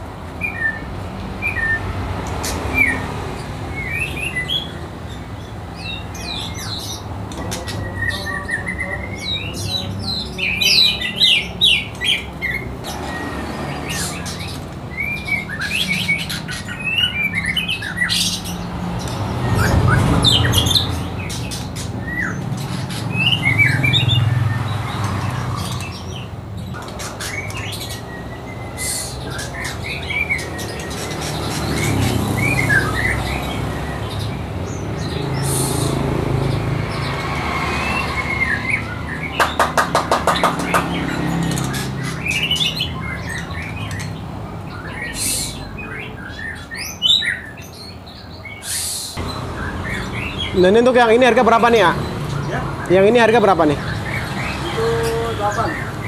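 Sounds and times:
songbirds chirping and singing: 0:00.0 - 0:56.0.

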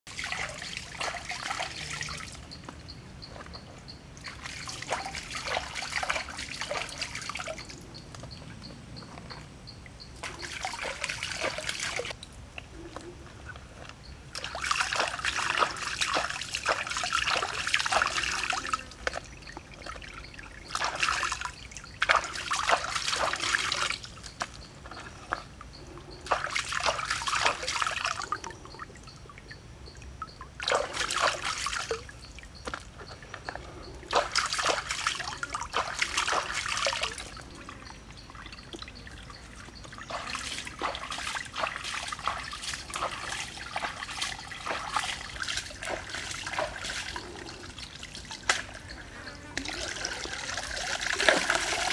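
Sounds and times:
water splashing in a basket: 0:00.1 - 0:02.5, 0:04.2 - 0:07.8, 0:10.2 - 0:12.4, 0:14.3 - 0:24.6, 0:26.2 - 0:28.5, 0:30.3 - 0:33.0, 0:34.0 - 0:49.0, 0:49.6 - 0:51.9.

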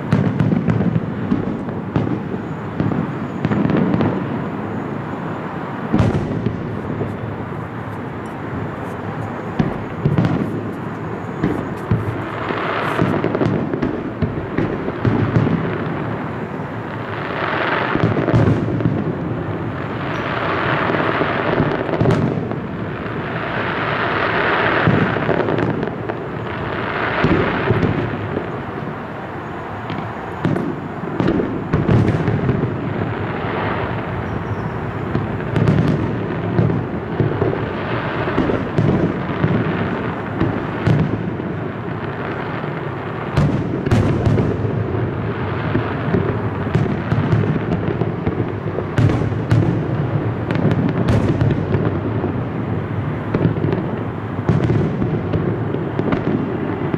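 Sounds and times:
fireworks shells bursting: 0:05.9 - 0:15.9, 0:29.8 - 0:41.3.

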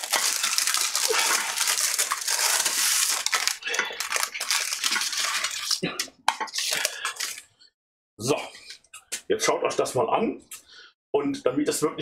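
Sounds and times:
baking paper crinkling: 0:00.0 - 0:07.4.

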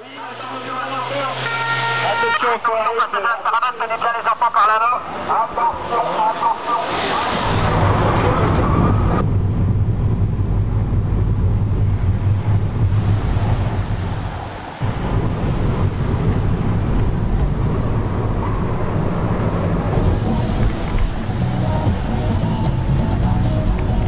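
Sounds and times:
car interior road rumble: 0:07.5 - 0:24.0.

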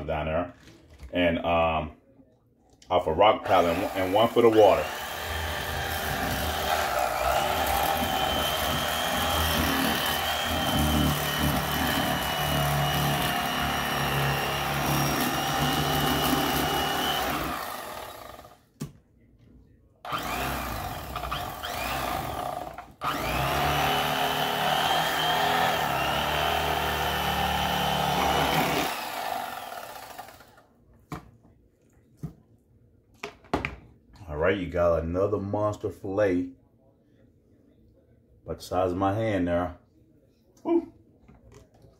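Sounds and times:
electric fillet knife motor whine: 0:20.1 - 0:30.5.

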